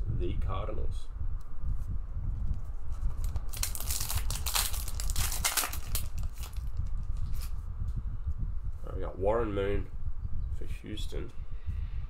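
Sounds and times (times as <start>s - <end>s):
foil wrapper crinkling: 3.1s - 7.5s.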